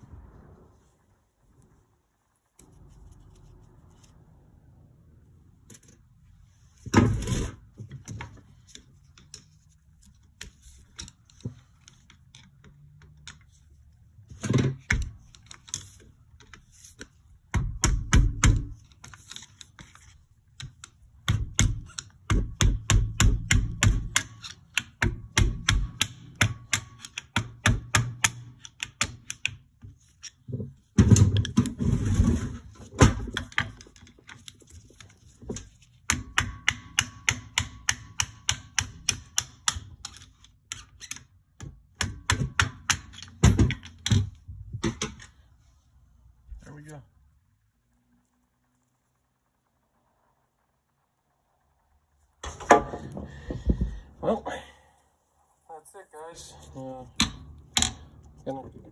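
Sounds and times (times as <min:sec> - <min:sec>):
metal clicks and taps: 0:08.1 - 0:13.6, 0:17.8 - 0:30.4, 0:33.2 - 0:45.3.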